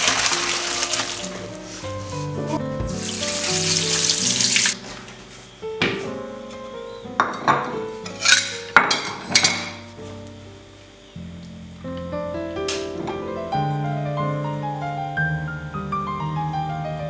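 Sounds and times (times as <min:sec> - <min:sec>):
water draining through colander: 0:00.0 - 0:01.9, 0:02.8 - 0:04.8
soft piano music: 0:00.0 - 0:17.0
kitchenware knocking on cutting board: 0:02.8 - 0:03.0.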